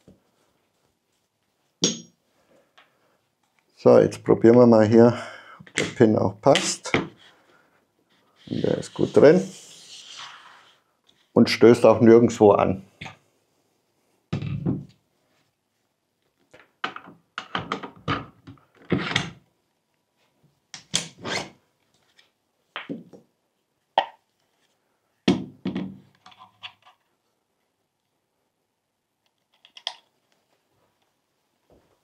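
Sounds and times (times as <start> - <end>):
tools thunking on wooden workbench: 25.3 - 26.0.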